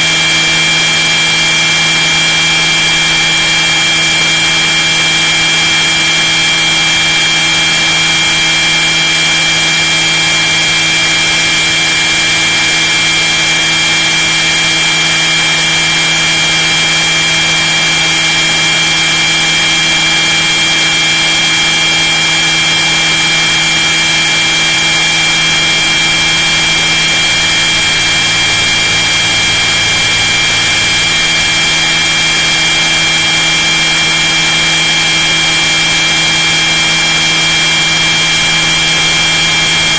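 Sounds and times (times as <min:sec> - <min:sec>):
model helicopter motor whine: 0:00.0 - 0:39.9
rotor wash noise: 0:22.8 - 0:39.9.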